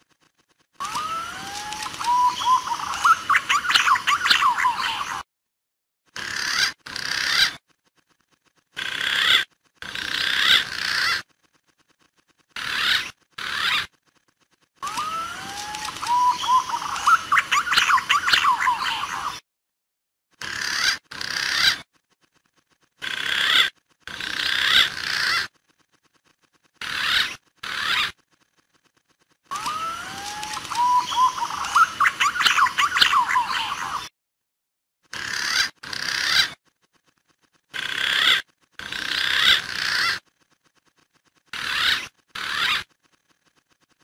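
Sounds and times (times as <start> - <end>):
pigeon whistling calls: 0.8 - 5.2, 14.8 - 19.4, 29.5 - 34.1.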